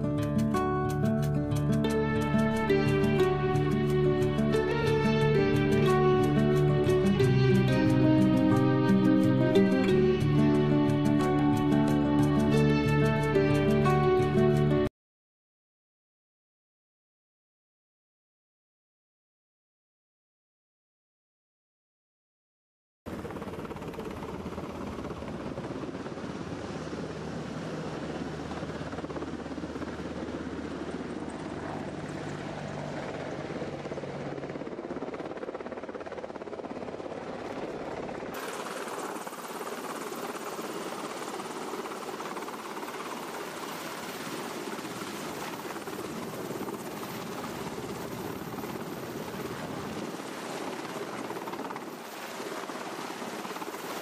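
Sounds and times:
helicopter rotor and turbine noise: 0.0s - 14.9s, 23.1s - 54.0s.

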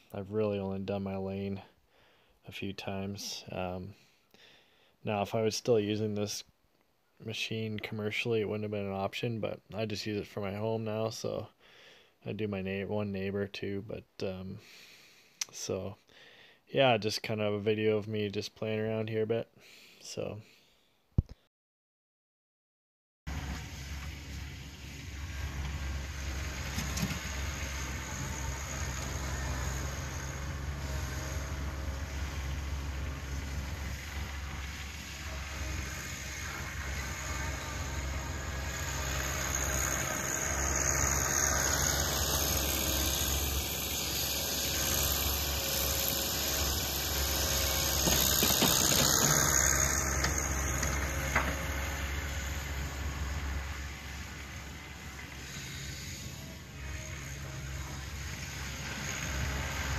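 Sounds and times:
tractor diesel engine running: 23.3s - 59.9s.

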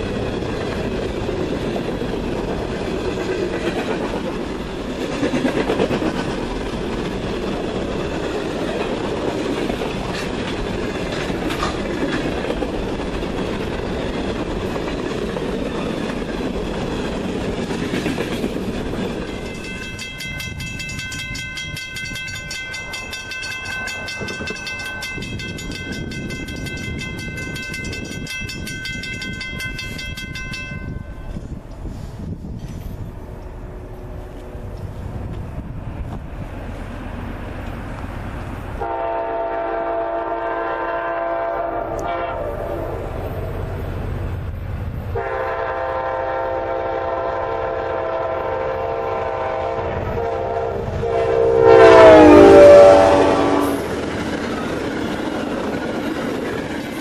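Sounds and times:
train wheels clattering on rails: 0.0s - 33.2s, 52.0s - 57.0s
train horn chord: 38.8s - 43.1s, 45.2s - 53.9s.

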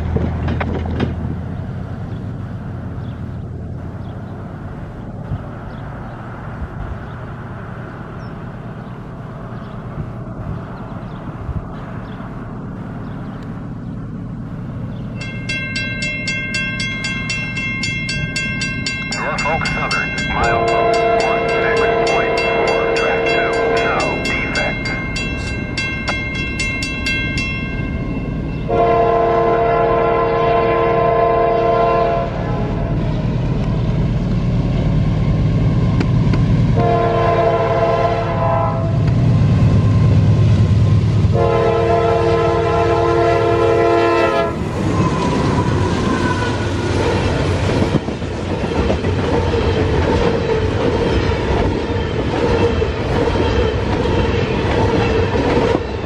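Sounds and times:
train wheels clickety-clack: 0.0s - 1.3s, 35.9s - 36.5s, 44.7s - 56.0s
locomotive engine rumble: 0.0s - 56.0s
locomotive horn blasts: 19.1s - 26.2s, 28.6s - 32.8s, 36.8s - 39.0s, 41.3s - 45.1s.

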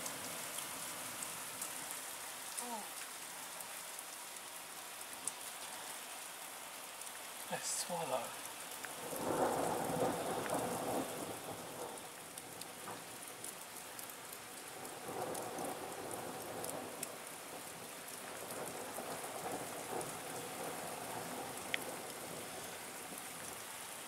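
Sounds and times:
rain pattering: 0.0s - 24.0s
thunder rumbling: 9.0s - 13.1s.

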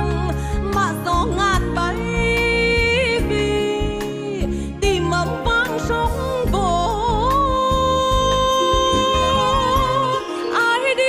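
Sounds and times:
folk song with ornamented melody: 5.0s - 11.0s.

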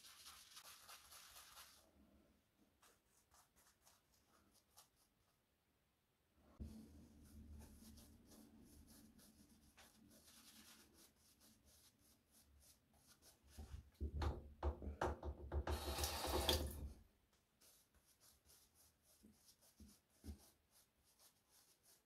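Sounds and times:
shaving brush rubbing lather: 0.0s - 1.9s, 7.0s - 13.7s.

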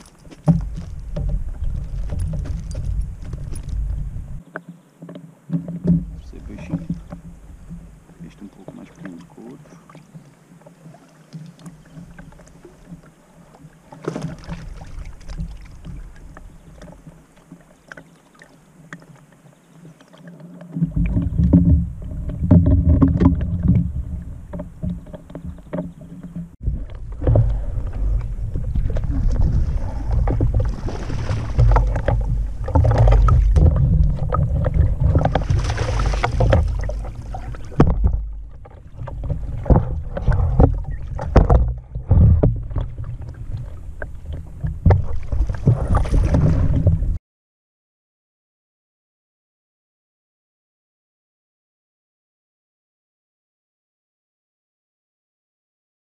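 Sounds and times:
wind buffeting microphone: 0.0s - 4.4s, 26.6s - 47.2s
loud low rumble with knocks: 0.4s - 4.4s, 26.5s - 47.2s
water slapping against boat hull: 5.5s - 10.0s, 13.9s - 18.1s, 20.7s - 47.2s.

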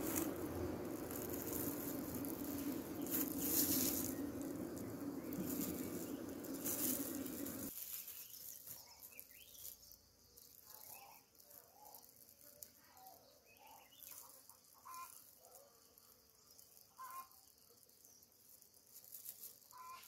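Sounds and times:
honeybees buzzing: 0.0s - 7.7s
rustling: 0.0s - 12.8s, 18.4s - 20.0s
faint chirps: 0.0s - 20.0s.

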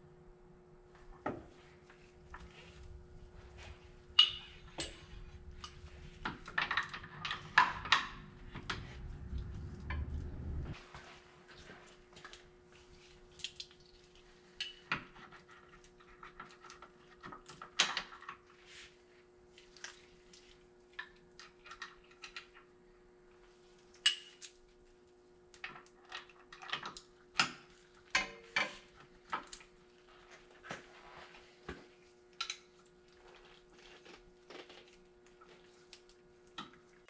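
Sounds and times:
steady hum: 0.0s - 10.8s
metal clinks and knocks: 4.1s - 10.8s.

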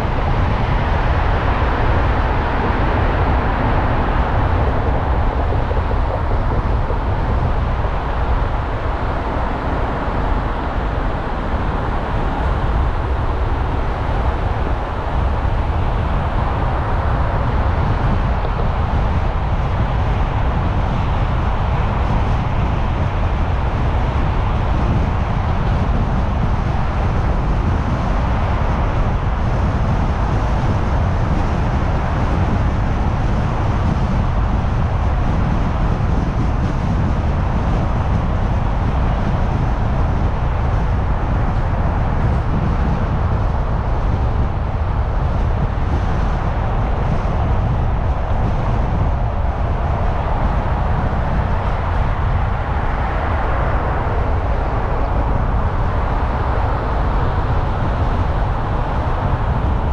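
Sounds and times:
car driving on road: 0.0s - 59.9s.

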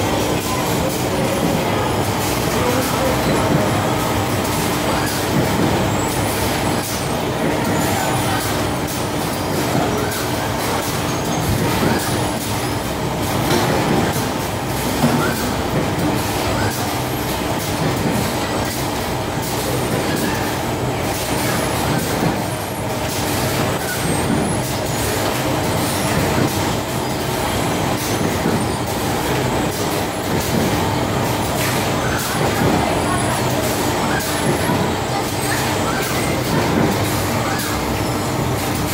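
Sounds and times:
conveyor belts and gear motors: 0.0s - 38.9s.

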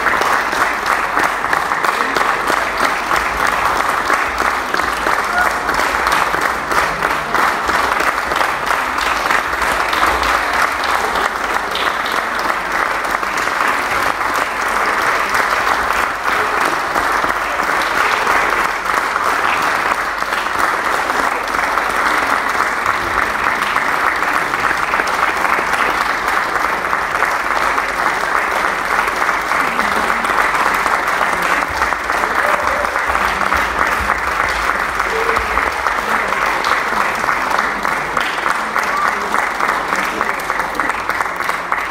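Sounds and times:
crowd applause: 0.0s - 41.9s.

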